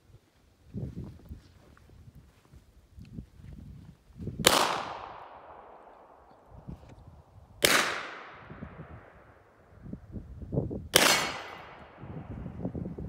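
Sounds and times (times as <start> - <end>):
pistol shots with echo: 4.4 - 6.2, 7.6 - 9.2, 10.9 - 12.0.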